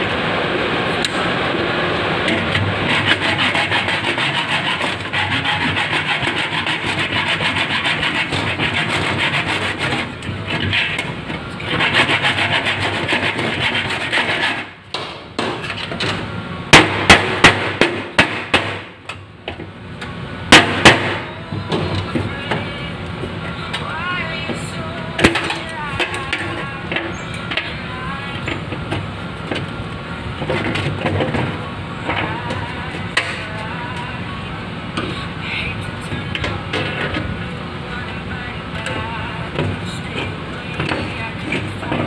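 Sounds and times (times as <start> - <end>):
metal rasping on bolt: 2.9 - 11.1.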